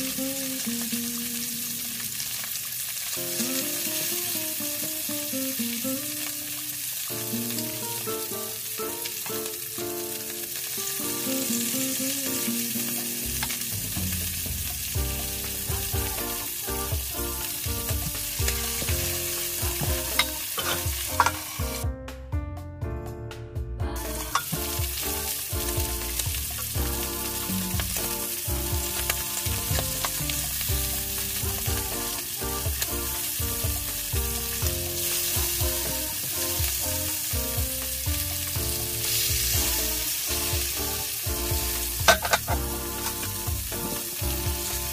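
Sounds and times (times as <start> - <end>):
fish sizzling in hot oil: 0.0 - 21.8, 23.9 - 44.9
spatula turning fish: 18.0 - 21.8, 41.8 - 44.9.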